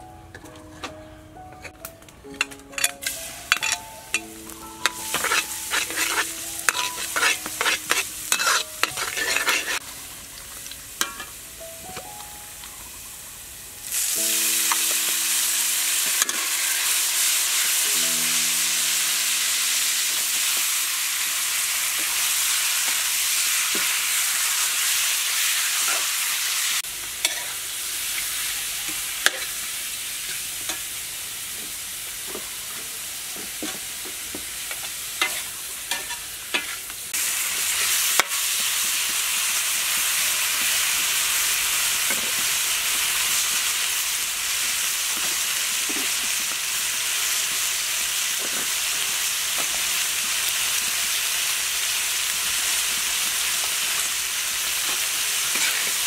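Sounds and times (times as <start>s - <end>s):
metal spatula scraping wok: 2.4s - 3.9s, 4.8s - 9.8s, 27.2s - 27.7s, 29.2s - 29.6s, 34.7s - 36.9s, 55.4s - 56.0s
food sizzling in hot oil: 2.4s - 56.0s.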